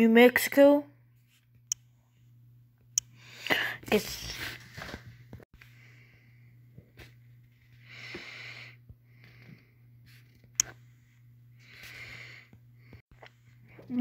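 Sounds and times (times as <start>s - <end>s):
person breathing: 3.1s - 3.9s, 5.6s - 6.7s, 7.7s - 10.2s, 11.0s - 13.1s.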